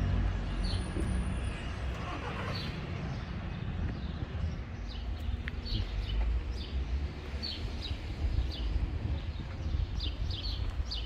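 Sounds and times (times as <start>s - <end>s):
small birds chirping: 2.5s - 11.0s.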